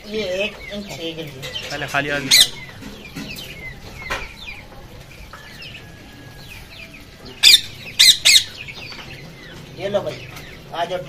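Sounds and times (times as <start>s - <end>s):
birds chirping and clucking: 0.0s - 11.0s
loud sharp squawks: 1.6s - 2.8s.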